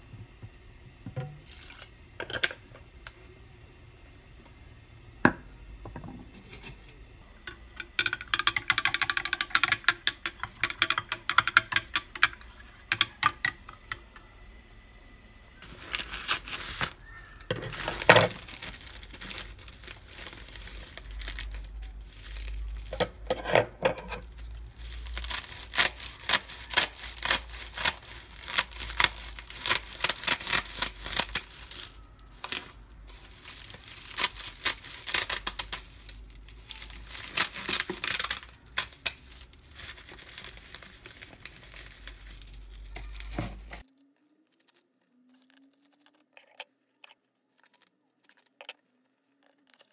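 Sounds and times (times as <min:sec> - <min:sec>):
seaweed sheets crackling: 0:15.6 - 0:23.0, 0:24.2 - 0:46.4.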